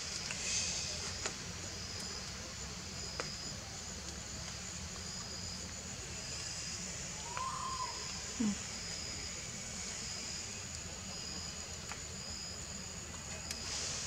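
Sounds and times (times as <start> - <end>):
steady hiss: 0.0 - 14.0
high insect chirp: 5.0 - 14.0
faint click: 13.3 - 13.6.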